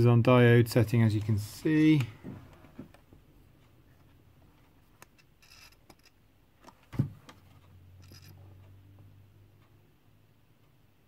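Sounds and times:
test probes clicking and scraping: 0:04.0 - 0:08.8.

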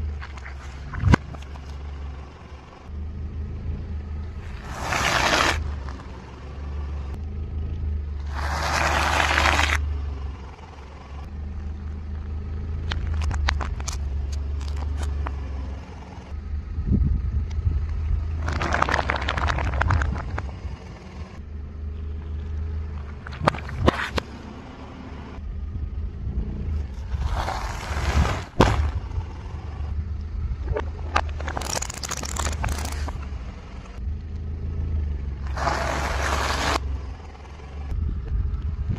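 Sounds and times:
car engine hum: 0:00.0 - 0:38.9
tyre crushing objects: 0:04.5 - 0:06.0, 0:08.3 - 0:09.8, 0:27.0 - 0:29.1.

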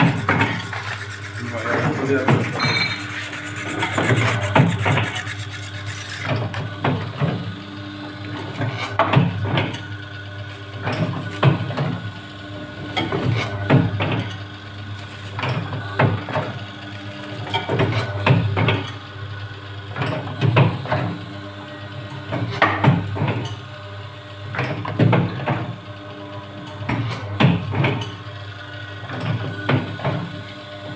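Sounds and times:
motor hum: 0:00.0 - 0:30.9.

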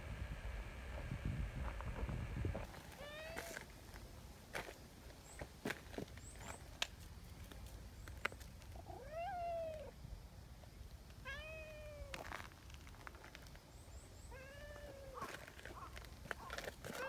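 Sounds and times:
cat meowing: 0:03.0 - 0:03.6, 0:08.9 - 0:09.9, 0:11.2 - 0:12.2, 0:14.3 - 0:15.3.

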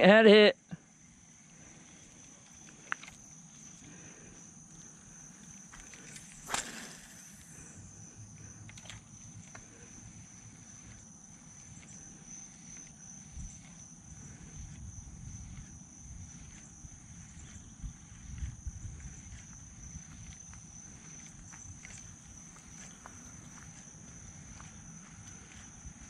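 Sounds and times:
insects droning: 0:00.0 - 0:26.0.

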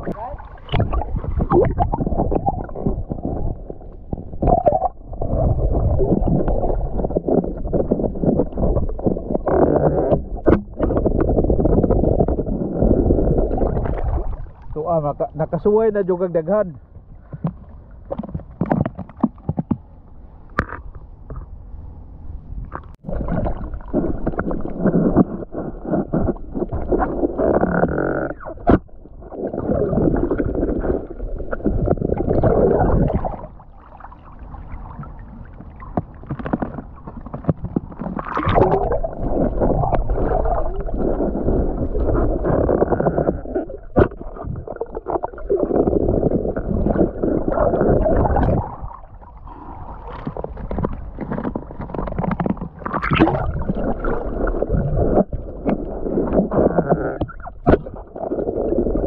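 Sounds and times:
muffled seawater sloshing and gurgling: 0:00.0 - 0:59.0.

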